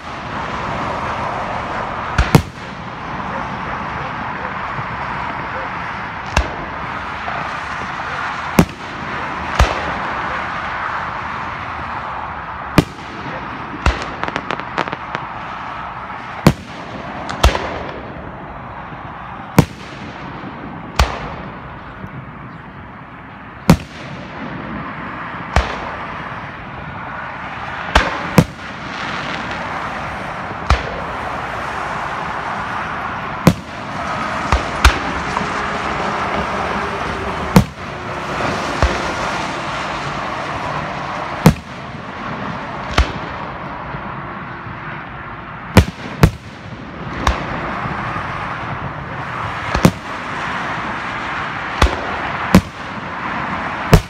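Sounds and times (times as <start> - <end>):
background noise: 0.0 - 54.0
small firework pops: 2.2 - 2.7, 6.2 - 6.6, 12.8 - 15.3, 25.5 - 26.0, 30.6 - 31.0, 42.9 - 43.4, 49.7 - 50.2
firework shells bursting: 12.7 - 15.8.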